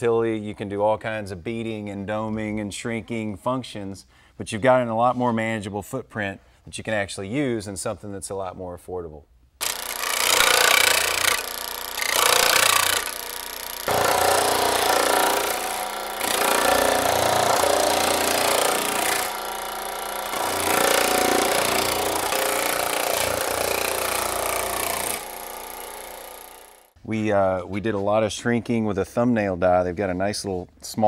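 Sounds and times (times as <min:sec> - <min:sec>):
power hammer hammering sheet metal: 0:09.6 - 0:26.6.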